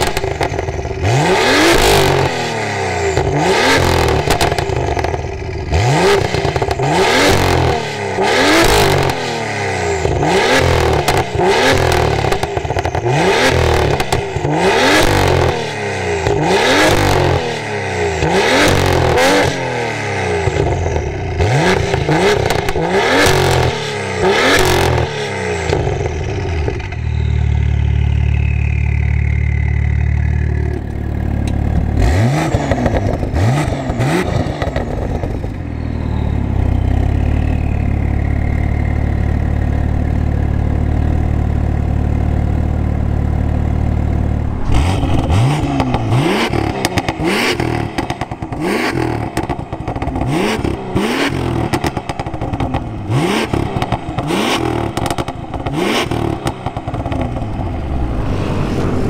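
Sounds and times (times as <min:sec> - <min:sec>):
car engine idling: 0:00.0 - 0:19.6, 0:24.8 - 0:59.0
car engine revving with crackles: 0:00.0 - 0:59.0.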